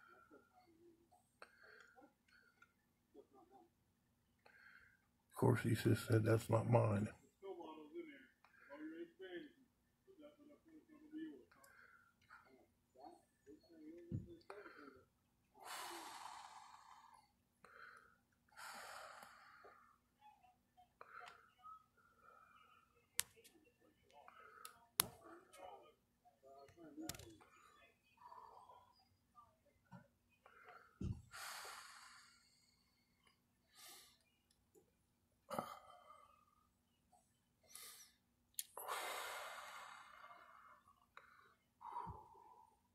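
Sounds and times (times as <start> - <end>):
person breathing: 14.5 - 20.0, 30.4 - 34.2, 37.6 - 42.9
breathy exhale: 38.8 - 42.8.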